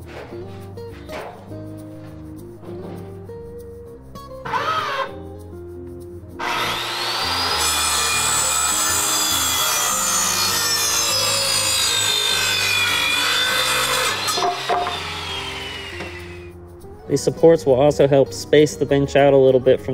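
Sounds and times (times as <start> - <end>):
circular saw cutting wood: 4.4 - 5.2, 6.4 - 16.6.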